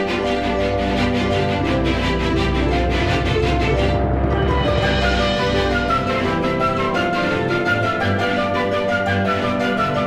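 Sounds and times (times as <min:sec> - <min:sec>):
background music with sustained notes: 0:00.0 - 0:10.0
deep bass line: 0:01.3 - 0:06.9.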